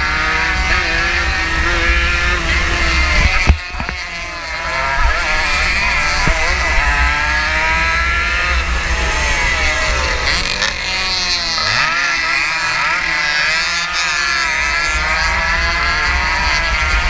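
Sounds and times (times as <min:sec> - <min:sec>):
wind buffeting microphone: 0:00.0 - 0:11.6
motorcycle engine at high revs: 0:00.0 - 0:17.0.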